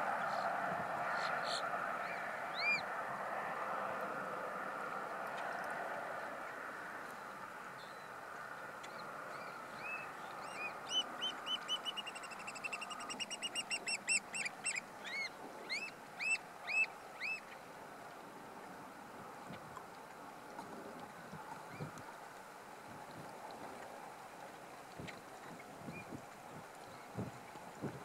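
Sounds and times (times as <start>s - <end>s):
oystercatchers piping: 9.8s - 17.5s.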